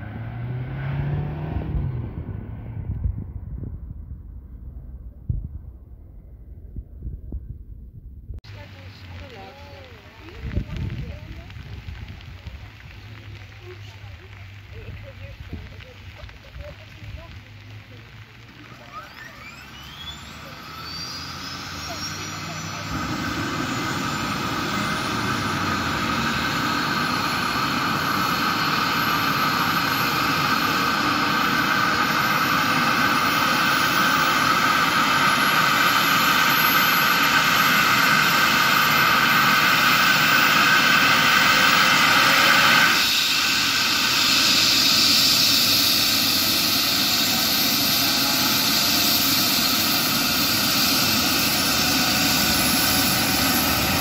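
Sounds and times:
helicopter turbine whine: 0:19.0 - 0:54.0.

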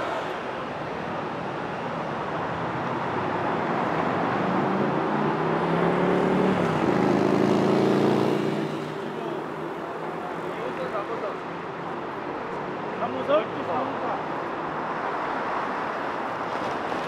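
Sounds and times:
city traffic hum: 0:00.0 - 0:17.0
vehicle engine passing by: 0:05.1 - 0:09.0.

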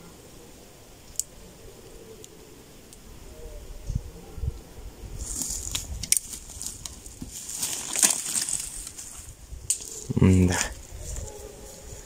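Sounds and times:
footsteps crunching dry twigs: 0:05.2 - 0:12.0.

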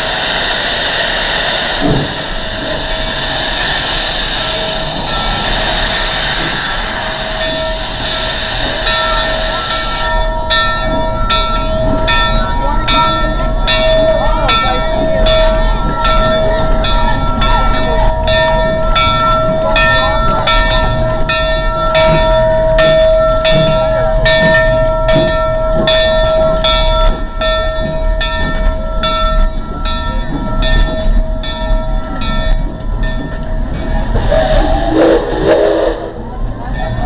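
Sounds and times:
steam hissing: 0:00.0 - 0:12.2, 0:33.6 - 0:36.4
high whine: 0:00.0 - 0:12.3
steam locomotive chuffing: 0:00.0 - 0:37.0.

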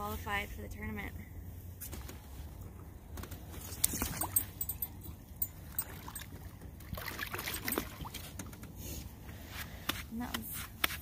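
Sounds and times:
water splashing against a boat: 0:05.6 - 0:08.8.

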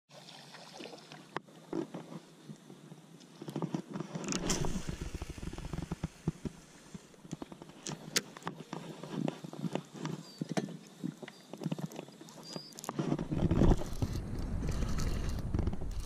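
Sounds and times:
short rush of noise: 0:04.3 - 0:07.1.

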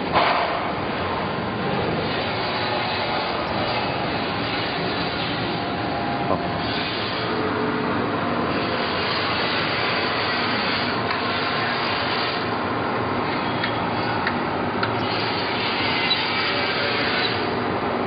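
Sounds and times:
knife grinder rasping: 0:06.6 - 0:07.4, 0:15.0 - 0:17.5.

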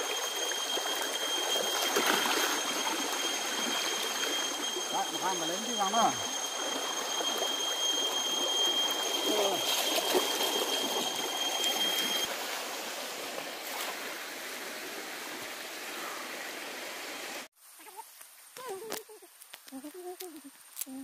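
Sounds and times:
splashing as man wades: 0:00.0 - 0:04.8, 0:06.5 - 0:15.0
steady high whine: 0:00.0 - 0:13.6
river water running over stones: 0:00.0 - 0:17.5.

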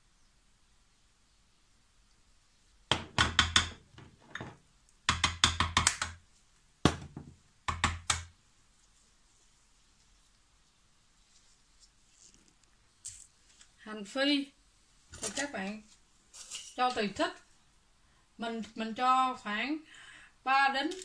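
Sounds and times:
metal spoon tapping plastic bowl: 0:02.9 - 0:06.2, 0:06.9 - 0:08.3.

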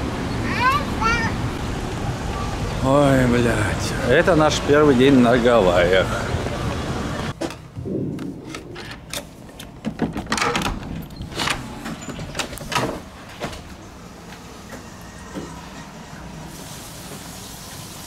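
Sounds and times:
door clicks and knocks: 0:08.5 - 0:13.1.

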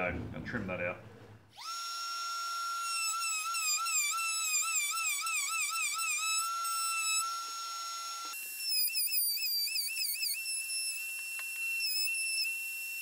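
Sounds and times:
whistle-like melody: 0:08.6 - 0:13.0.

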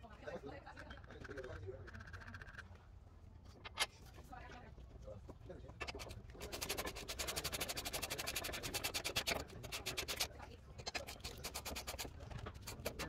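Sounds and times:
hand ratchet clicking rapidly: 0:05.8 - 0:10.3, 0:10.9 - 0:13.0.

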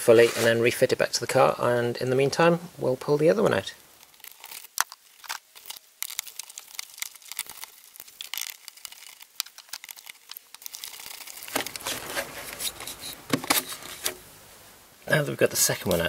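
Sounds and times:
hands rustling: 0:03.9 - 0:14.3.

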